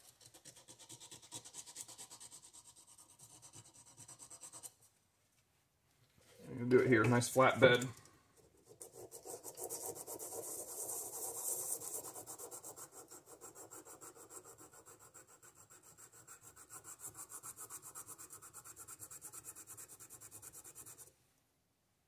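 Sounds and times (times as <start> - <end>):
metal scratching on sandpaper: 8.6 - 21.1.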